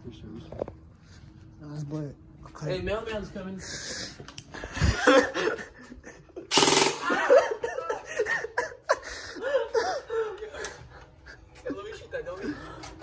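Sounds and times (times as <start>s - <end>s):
people laughing: 4.0s - 13.0s
airsoft gun burst: 6.5s - 7.2s.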